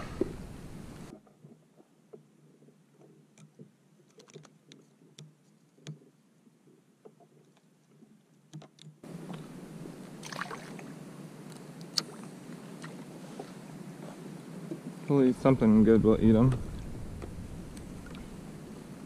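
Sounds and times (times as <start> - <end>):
wind and water noise: 0.0 - 19.0
small clicks and rustles of hands: 2.5 - 9.0.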